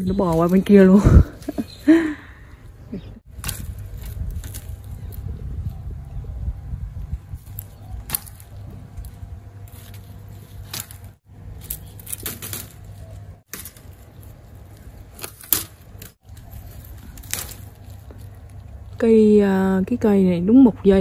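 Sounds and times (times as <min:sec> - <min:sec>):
leaves rustling: 0:00.0 - 0:02.6, 0:03.2 - 0:20.0
stems snapping: 0:03.3 - 0:05.9, 0:07.4 - 0:19.1.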